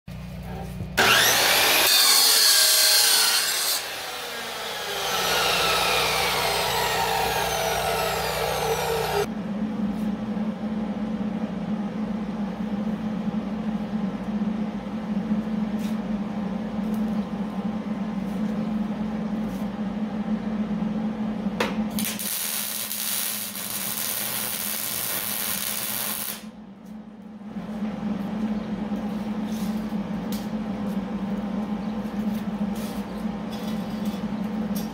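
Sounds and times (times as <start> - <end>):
chop saw cutting steel: 1.0 - 9.3
steady low hum: 3.8 - 34.9
loud hissing crackle: 22.0 - 26.5.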